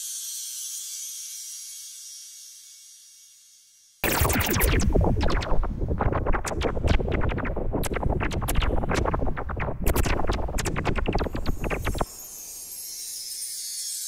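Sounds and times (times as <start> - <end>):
low rumble: 4.0 - 12.2.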